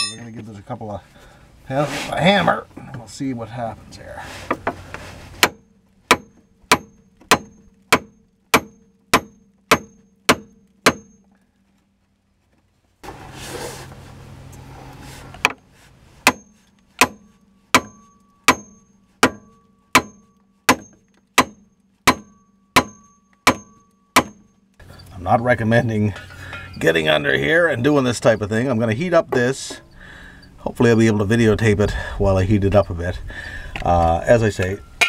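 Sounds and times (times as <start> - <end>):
hammer striking metal: 0.0 - 0.3, 5.4 - 11.2, 16.2 - 24.6.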